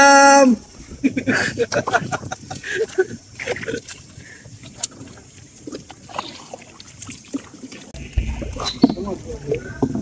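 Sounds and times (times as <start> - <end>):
oars splashing in water: 1.6 - 10.0.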